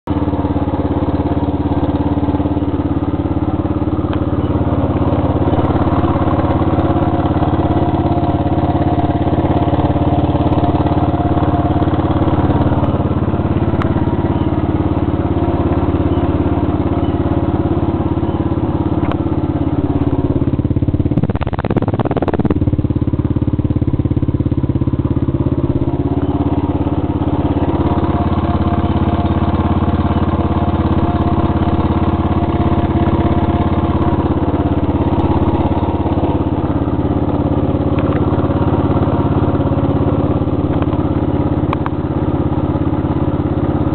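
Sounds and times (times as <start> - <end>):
motorcycle engine idling: 0.0 - 43.9.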